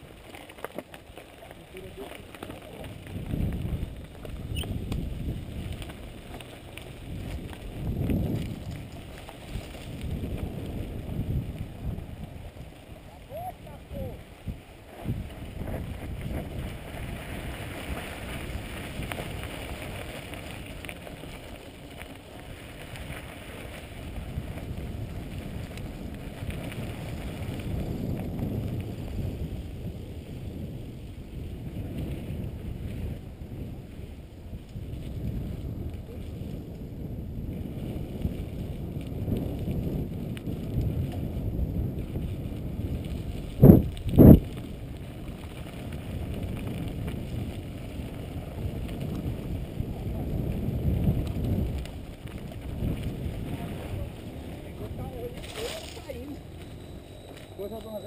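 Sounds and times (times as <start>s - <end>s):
bike tyres and frame rattling: 0.0s - 58.0s
wind buffeting microphone: 1.4s - 58.0s.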